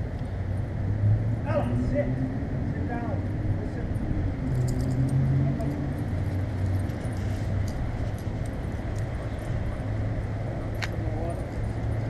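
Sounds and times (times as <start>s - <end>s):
light metallic jingling: 3.9s - 12.0s.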